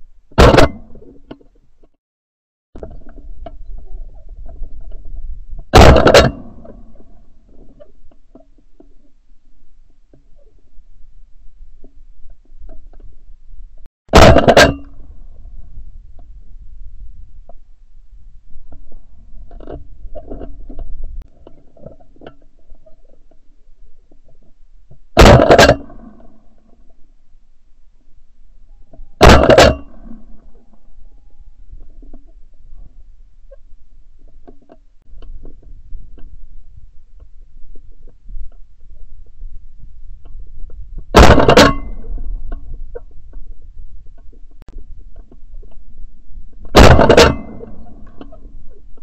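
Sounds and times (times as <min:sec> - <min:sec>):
low wind: 0:00.0 - 0:02.0, 0:02.8 - 0:49.0
low rumble: 0:02.8 - 0:21.8, 0:25.9 - 0:49.0
loud shotgun shot: 0:05.8 - 0:06.4, 0:25.2 - 0:25.8, 0:46.8 - 0:47.6.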